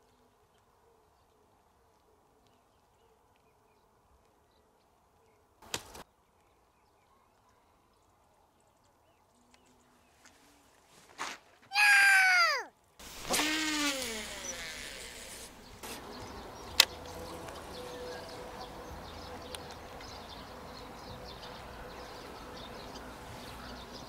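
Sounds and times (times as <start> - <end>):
insects buzzing: 13.0 - 16.2.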